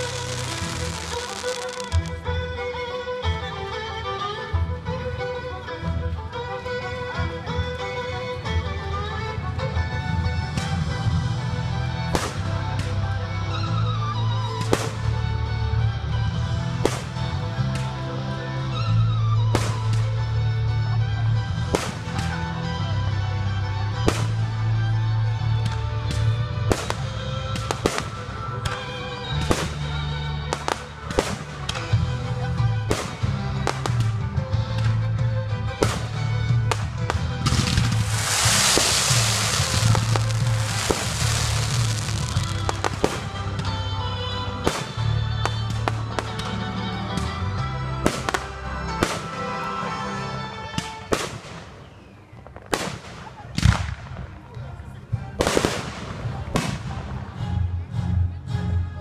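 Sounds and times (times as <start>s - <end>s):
fireworks bangs and crackles: 0.0s - 2.2s, 12.1s - 13.0s, 14.5s - 15.2s, 16.8s - 17.9s, 21.6s - 22.4s, 24.0s - 24.6s, 25.6s - 28.8s, 29.4s - 32.0s, 32.9s - 35.0s, 35.8s - 43.7s, 44.6s - 46.5s, 50.8s - 57.4s
fireworks bursting: 0.0s - 2.2s, 37.4s - 43.7s
music with strong bass: 8.8s - 49.2s.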